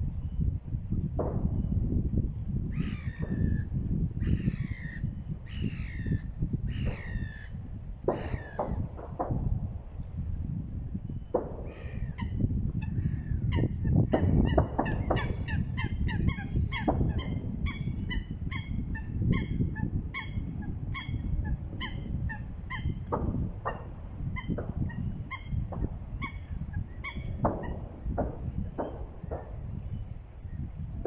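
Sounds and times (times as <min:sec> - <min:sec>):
steady low rumble: 0:01.1 - 0:31.0
waterfowl honking: 0:14.4 - 0:23.0.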